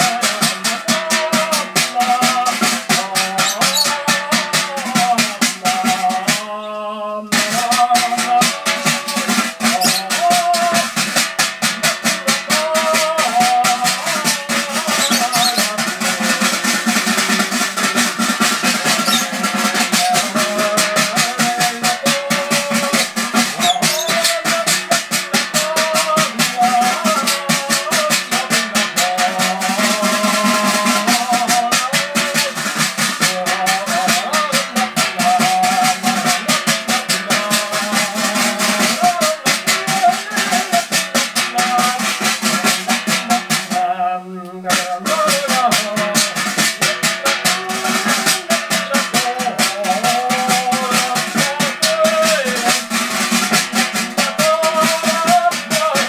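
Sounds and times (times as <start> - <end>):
shaker rattle: 2.0 - 4.0, 9.0 - 10.7, 12.6 - 32.6
wandering melody: 3.4 - 4.0, 14.9 - 15.8, 18.7 - 19.7, 23.0 - 24.3.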